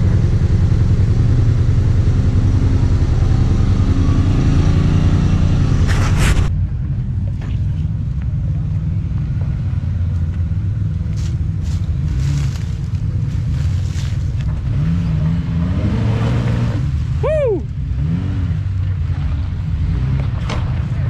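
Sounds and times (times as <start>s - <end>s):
off-road vehicle engine rumble: 0.0s - 21.0s.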